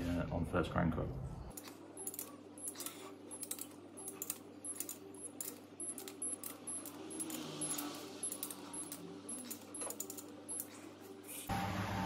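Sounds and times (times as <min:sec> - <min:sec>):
ratchet torque wrench clicking: 0:01.5 - 0:10.7.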